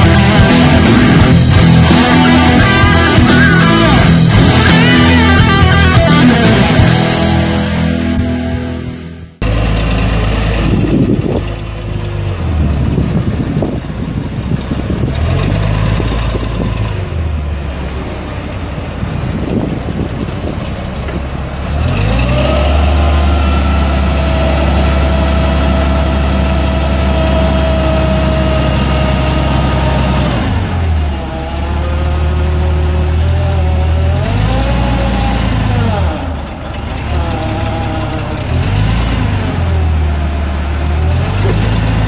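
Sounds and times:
steady whine: 0:00.0 - 0:11.9
forklift engine running and revving: 0:00.0 - 0:42.0.

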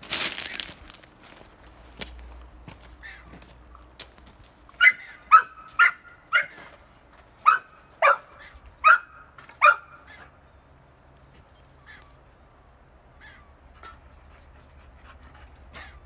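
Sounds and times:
dog barking: 0:04.8 - 0:06.6, 0:07.4 - 0:10.2.

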